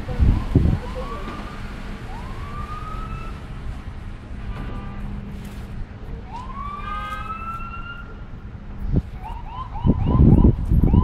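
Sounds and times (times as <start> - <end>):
emergency vehicle siren wailing: 0.0 - 3.6, 6.2 - 8.4, 9.1 - 11.0.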